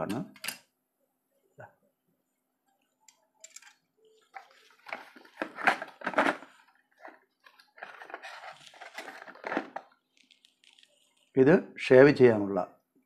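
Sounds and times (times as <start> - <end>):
cardboard packaging rustling: 4.2 - 11.2.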